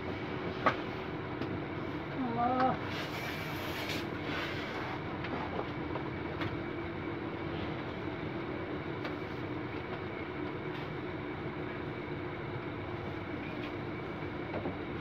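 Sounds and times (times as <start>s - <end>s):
constant low hum: 0.0s - 15.0s
workshop room rumble: 0.0s - 15.0s.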